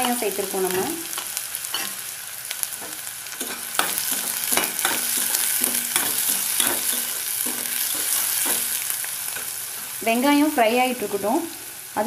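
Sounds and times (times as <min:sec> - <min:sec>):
onions sizzling in hot oil: 0:00.0 - 0:12.0
metal spoon scraping pan: 0:01.7 - 0:02.0, 0:02.8 - 0:09.9.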